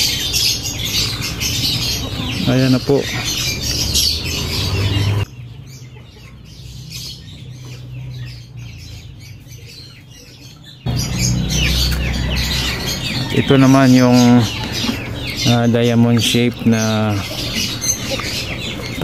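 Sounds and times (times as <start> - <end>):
small birds chirping: 0.0 - 19.0
loud low noise: 10.9 - 14.6.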